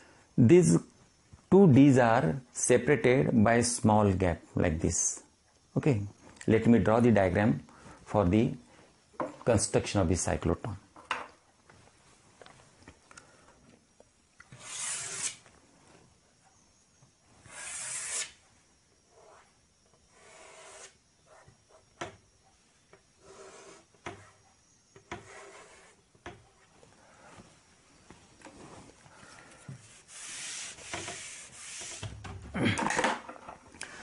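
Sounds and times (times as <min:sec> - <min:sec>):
chalk scraping on chalkboard: 0:14.5 - 0:15.4, 0:17.5 - 0:18.4, 0:19.1 - 0:19.5, 0:20.1 - 0:21.8, 0:23.2 - 0:24.4, 0:25.1 - 0:26.0, 0:29.8 - 0:32.1.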